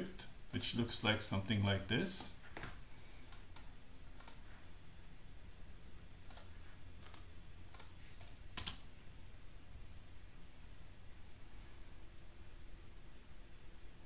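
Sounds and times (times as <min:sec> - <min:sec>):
mouse and keyboard clicks: 0:03.3 - 0:04.5, 0:06.3 - 0:08.8.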